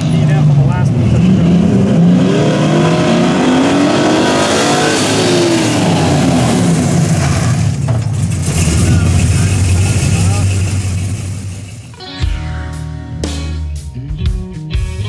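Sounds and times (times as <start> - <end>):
car engine accelerating hard: 0.0 - 11.9.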